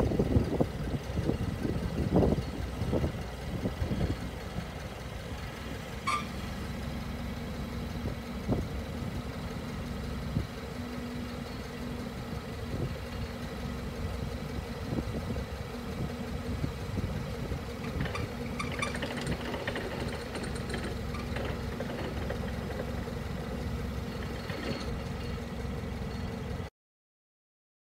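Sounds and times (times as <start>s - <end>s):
forklift engine idling: 0.0s - 26.7s
short clicks and rattles: 17.8s - 22.9s, 24.1s - 25.4s.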